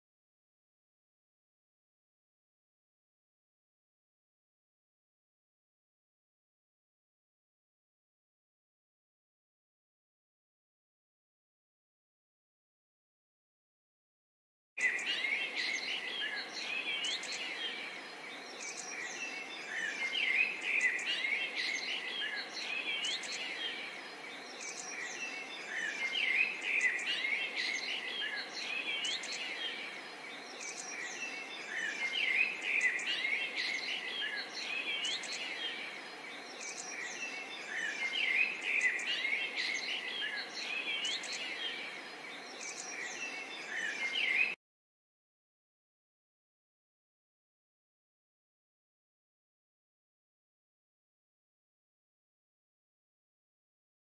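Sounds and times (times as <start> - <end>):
faint background hiss: 14.8 - 44.6
songbirds chirping and trilling: 14.8 - 44.6.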